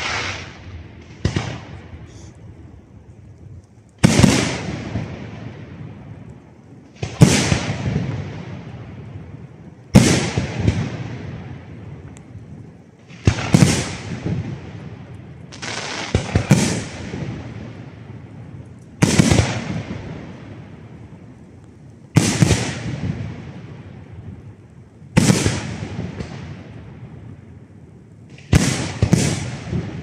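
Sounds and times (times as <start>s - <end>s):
firework shells bursting: 0.0s - 2.3s.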